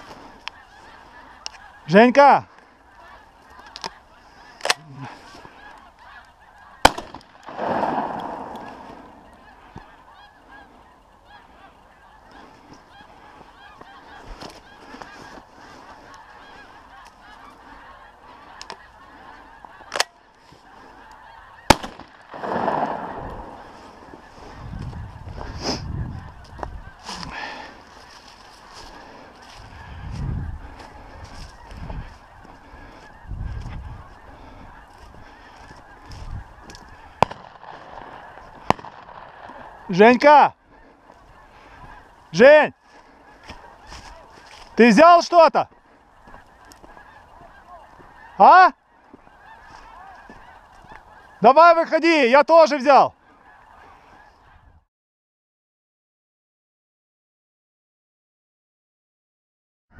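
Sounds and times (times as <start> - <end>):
geese honking: 0.0 - 54.9
low rumbles: 7.4 - 9.4.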